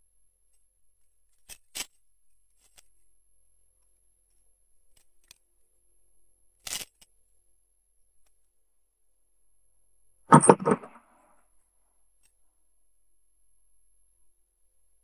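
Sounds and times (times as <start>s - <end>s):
handling scrape: 10.3s - 11.0s.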